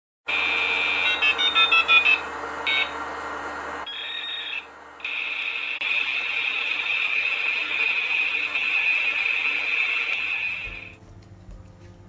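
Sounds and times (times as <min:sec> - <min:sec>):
high buzzing tone: 0:03.8 - 0:10.9.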